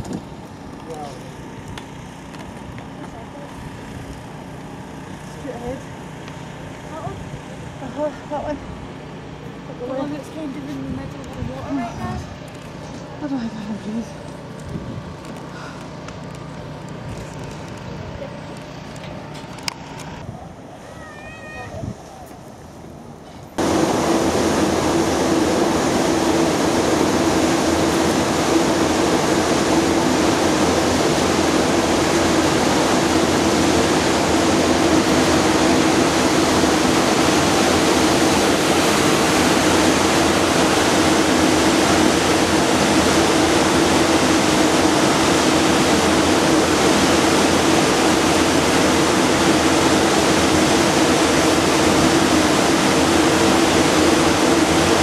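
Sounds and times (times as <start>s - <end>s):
loud steady rushing noise: 19.9s - 55.0s.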